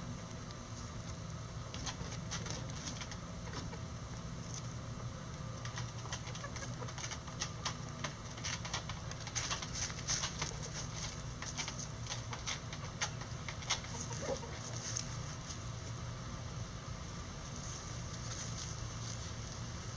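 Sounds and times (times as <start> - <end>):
chickens scratching in dry leaves: 0.2 - 19.9.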